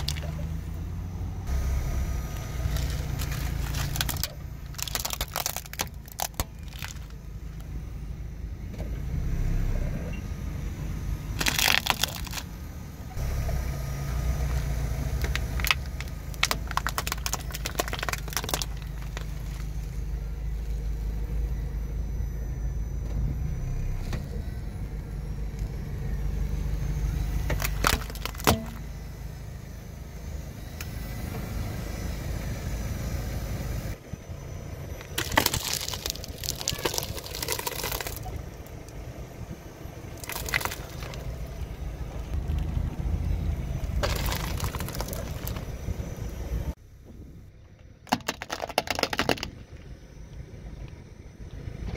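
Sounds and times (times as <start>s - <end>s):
plastic toys crunching under tyre: 0.0s - 0.6s, 2.1s - 7.8s, 11.3s - 12.7s, 14.3s - 20.2s, 27.2s - 28.9s, 34.8s - 46.8s, 48.0s - 49.9s
car engine rumbling: 0.0s - 51.9s.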